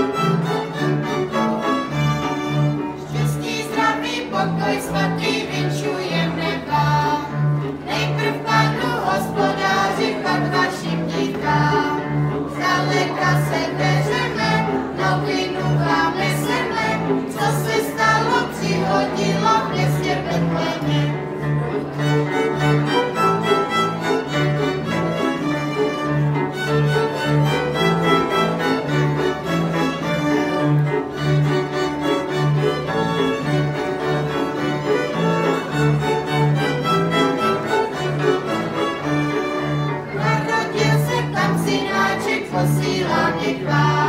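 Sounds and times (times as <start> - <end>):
clarinet: 0.0 - 44.0
double bass: 0.0 - 44.0
violins: 0.0 - 44.0
children singing: 3.0 - 21.2, 40.1 - 44.0.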